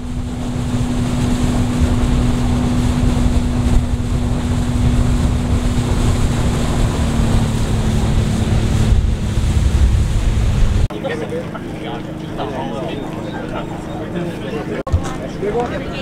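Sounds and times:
wind buffeting microphone: 0.0s - 10.9s
outboard motor running at speed: 0.0s - 16.0s.

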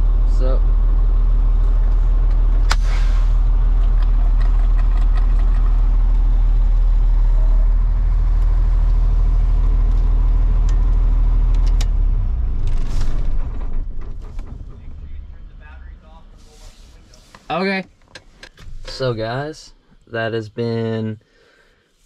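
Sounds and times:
diesel truck engine idling: 0.0s - 17.7s
short air hiss: 2.7s - 3.4s.

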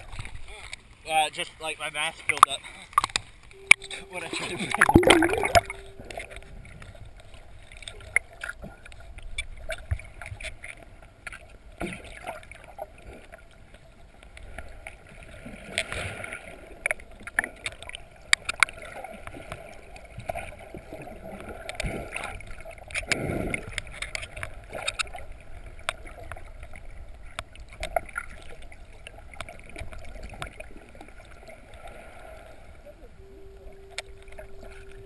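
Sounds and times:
sharp underwater clicks and knocks: 2.3s - 3.8s
muffled underwater water wash: 2.9s - 35.0s.

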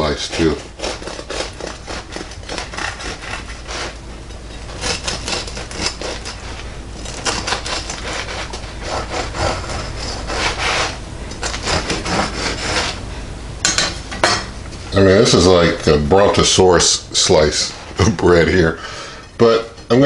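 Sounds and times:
bread knife sawing through crust: 0.0s - 4.0s, 4.7s - 13.0s.

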